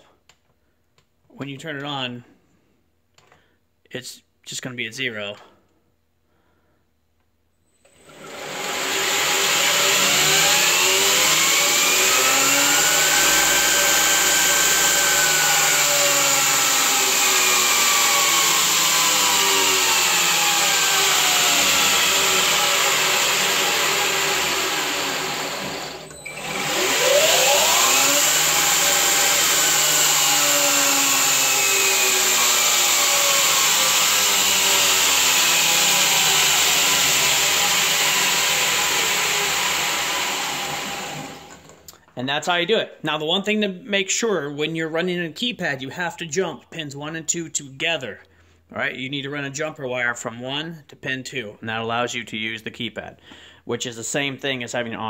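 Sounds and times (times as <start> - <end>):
electric motor whining: 8.0 - 41.6.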